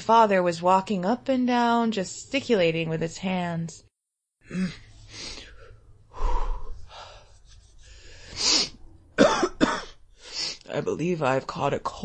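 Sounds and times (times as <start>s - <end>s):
woman making breathy sniffs: 6.8s - 8.8s, 10.2s - 10.6s.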